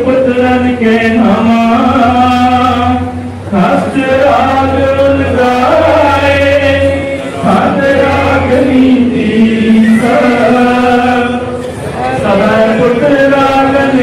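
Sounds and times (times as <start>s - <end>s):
man chanting: 0.0s - 14.0s.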